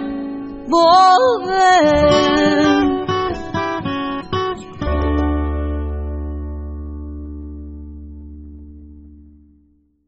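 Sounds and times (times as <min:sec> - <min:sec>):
acoustic guitar chord ringing: 0:00.0 - 0:09.6
low bass note: 0:01.8 - 0:03.5.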